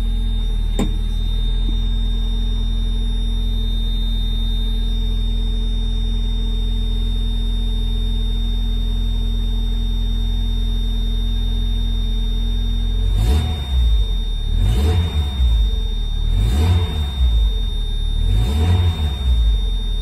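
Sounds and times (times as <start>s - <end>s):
car engine idling: 0.0s - 3.1s.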